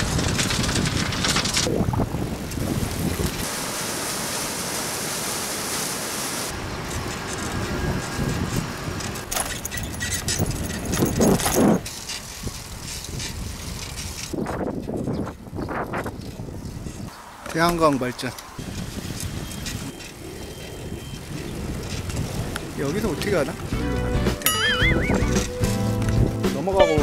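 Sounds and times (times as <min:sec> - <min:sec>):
bicycle rattling: 0:00.0 - 0:03.3, 0:06.5 - 0:17.2, 0:18.3 - 0:26.3
wind buffeting microphone: 0:00.0 - 0:03.5, 0:06.5 - 0:17.9, 0:18.5 - 0:24.2
steady rushing hiss: 0:00.0 - 0:09.2
road noise: 0:00.0 - 0:27.0.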